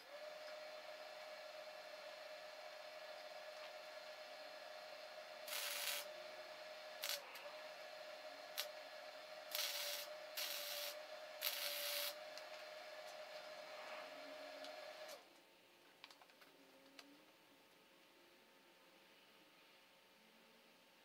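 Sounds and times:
steady hum: 0.0s - 15.8s
welding arc crackle: 5.4s - 6.1s, 7.0s - 7.3s, 8.5s - 8.8s, 9.5s - 12.2s.

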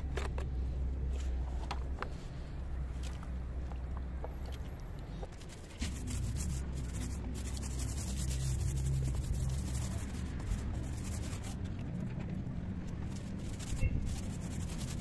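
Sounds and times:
paint roller rasping on concrete: 5.8s - 11.6s, 13.1s - 15.0s.

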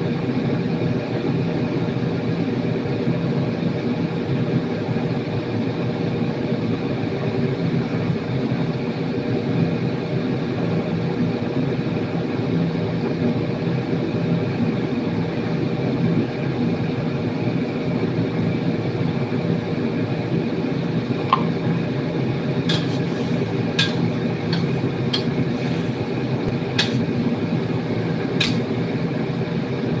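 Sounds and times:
range hood fan humming: 0.0s - 30.0s
gas burner: 20.5s - 30.0s
food frying in a wok: 21.4s - 30.0s
spatula clicking against wok: 23.8s - 25.3s, 26.8s - 27.0s, 28.4s - 28.6s.

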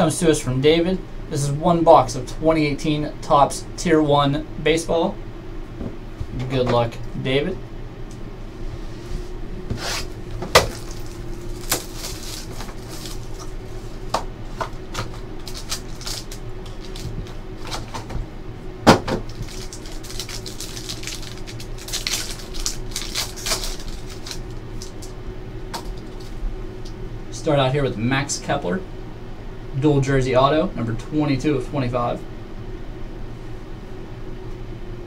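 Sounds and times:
steady low hum: 0.0s - 35.0s
foil pack and cards rustling: 10.0s - 18.2s, 19.1s - 26.4s.

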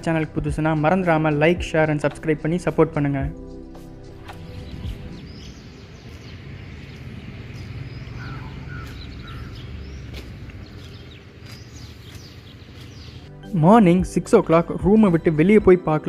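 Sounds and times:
low rumble: 3.4s - 10.7s
small birds chirping: 4.3s - 13.3s.

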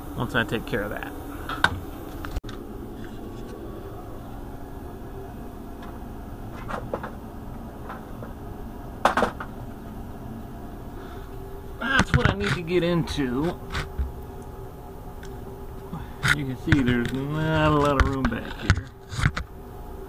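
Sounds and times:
steady low machine hum: 0.0s - 20.0s.

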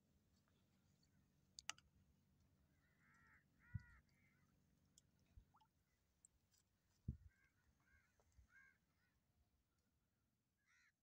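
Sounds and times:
faint bird calls: 2.7s - 4.6s, 7.1s - 9.2s, 10.6s - 11.0s.

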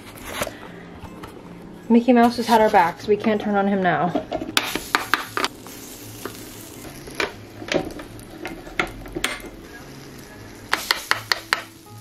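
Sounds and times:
batter sizzling on hot plates: 4.5s - 12.0s.

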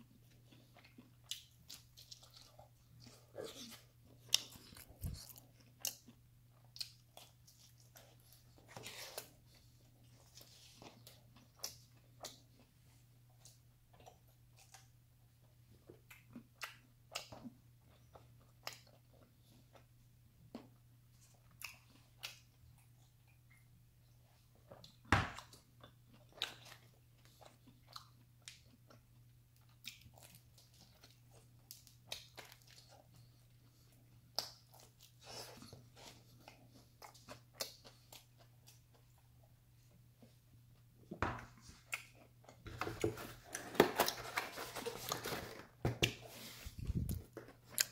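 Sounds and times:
chewing pizza: 0.0s - 47.9s.

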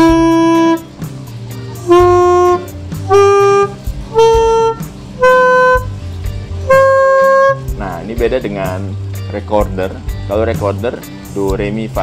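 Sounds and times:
reed wind instrument notes: 0.0s - 0.9s, 1.8s - 6.0s, 6.6s - 7.7s.

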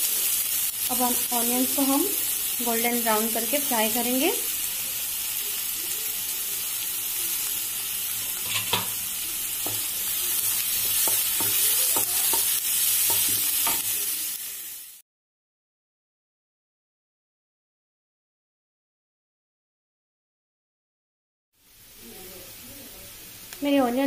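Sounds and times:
onions sizzling in oil: 0.0s - 15.0s, 21.6s - 24.0s
spatula scraping a pan: 8.2s - 14.0s.

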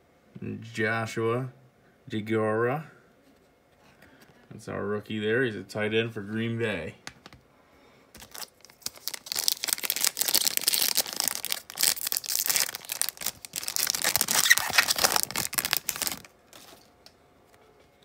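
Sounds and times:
wrapper tearing and crinkling: 8.2s - 16.9s.

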